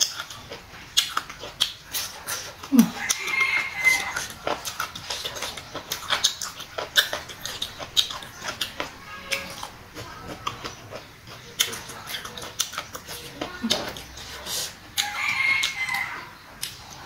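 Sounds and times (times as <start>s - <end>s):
crunchy chewing: 0.0s - 17.0s.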